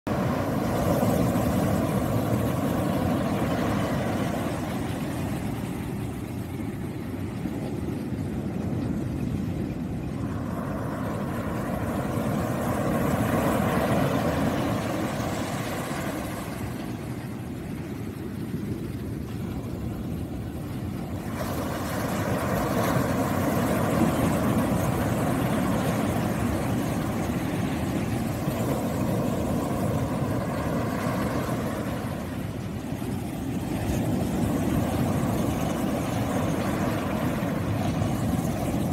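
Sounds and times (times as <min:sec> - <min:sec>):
ocean surf breaking on beach: 0:00.1 - 0:38.9.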